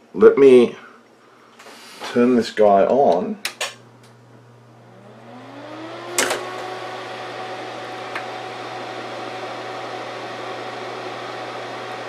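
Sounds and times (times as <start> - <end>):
signal generator hum rising: 3.8 - 12.0.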